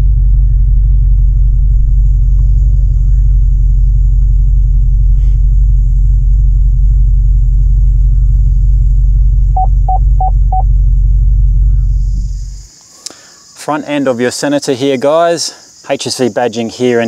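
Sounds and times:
car engine deep rumble: 0:00.0 - 0:12.8
car electronic beeps: 0:09.6 - 0:10.7.

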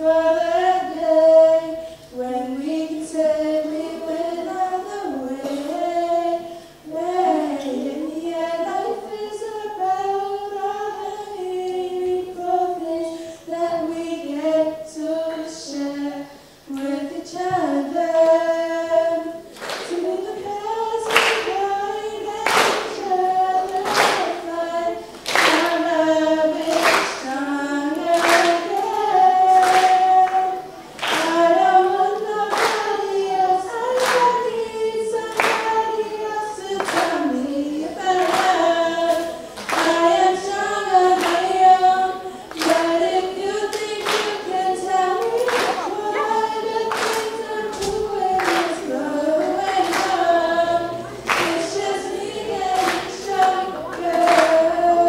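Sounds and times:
girls singing into microphones: 0:00.0 - 0:55.0
hand claps: 0:19.5 - 0:20.1, 0:21.0 - 0:21.6, 0:22.4 - 0:23.1, 0:23.7 - 0:24.4, 0:25.1 - 0:25.8, 0:26.6 - 0:27.3, 0:27.9 - 0:30.4, 0:31.0 - 0:31.4, 0:32.5 - 0:33.0, 0:33.9 - 0:34.5, 0:35.3 - 0:35.8, 0:36.8 - 0:37.4, 0:38.2 - 0:40.0, 0:41.2 - 0:41.5, 0:42.5 - 0:43.0, 0:43.7 - 0:44.5, 0:45.1 - 0:50.3, 0:51.2 - 0:54.7.

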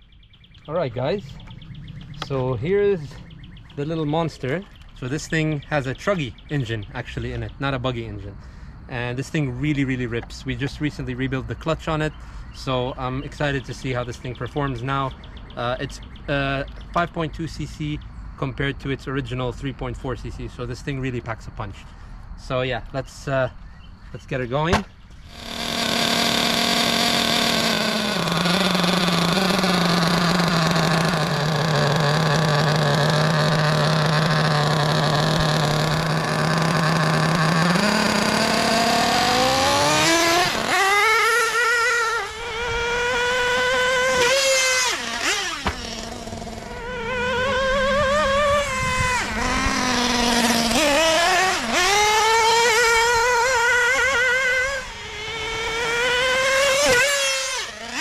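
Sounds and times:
nitro engine idling and revving: 0:24.7 - 0:58.0.

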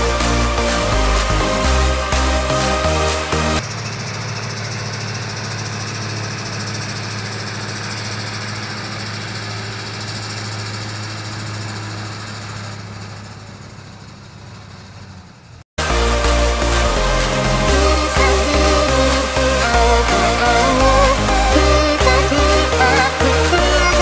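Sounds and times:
distant tractor diesel engine: 0:00.0 - 0:15.6.

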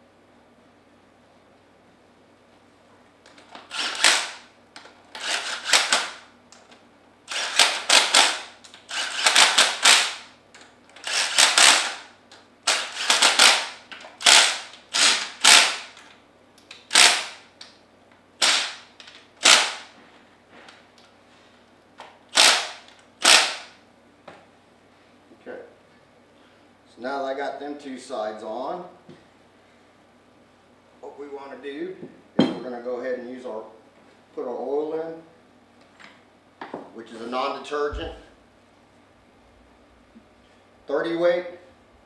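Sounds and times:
impact driver hammering bolts: 0:03.6 - 0:04.4, 0:07.3 - 0:10.3, 0:12.7 - 0:16.0, 0:22.3 - 0:23.7.

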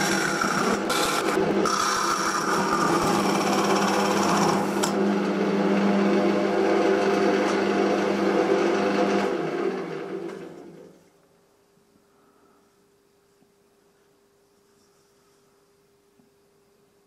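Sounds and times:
wood lathe motor humming: 0:00.0 - 0:10.9.

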